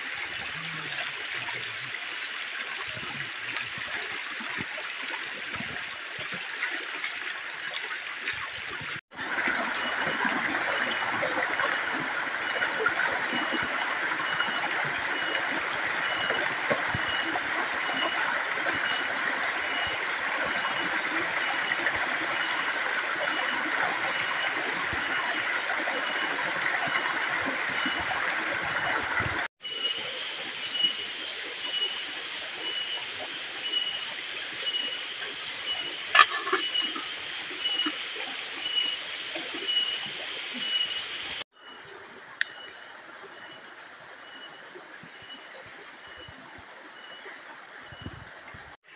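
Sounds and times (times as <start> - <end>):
water rushing over rocks: 0.0 - 29.5, 30.2 - 41.4
faint high chirp: 35.6 - 38.0.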